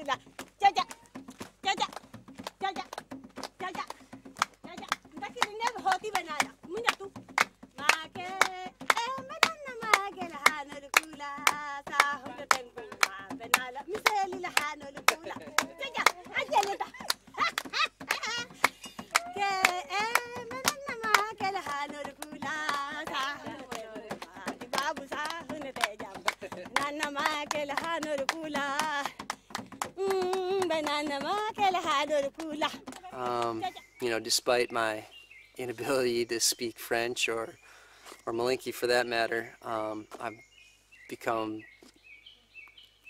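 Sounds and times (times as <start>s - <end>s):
women singing: 0.0s - 1.0s, 1.6s - 2.0s, 2.6s - 3.0s, 3.6s - 3.9s, 4.6s - 33.8s
women clapping hands: 0.0s - 33.7s.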